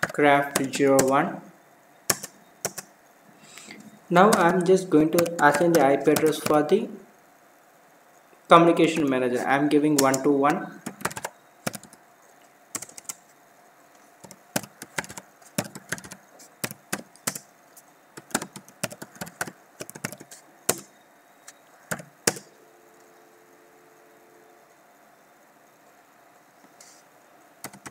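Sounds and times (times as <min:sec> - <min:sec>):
computer keyboard typing: 0:00.0 - 0:01.2, 0:02.1 - 0:02.9, 0:04.2 - 0:06.7, 0:09.9 - 0:12.0, 0:12.7 - 0:13.3, 0:14.2 - 0:17.5, 0:18.2 - 0:20.9, 0:21.9 - 0:22.5, 0:27.6 - 0:27.9.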